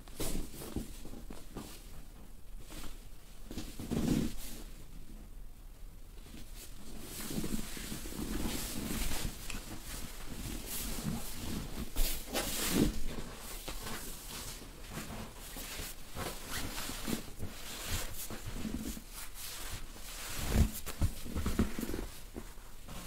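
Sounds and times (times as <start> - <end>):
hands rustling on clothing: 6.5 - 23.0.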